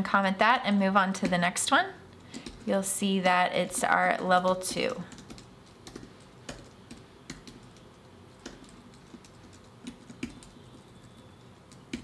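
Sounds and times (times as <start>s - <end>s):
keyboard keystrokes: 5.1s - 12.0s.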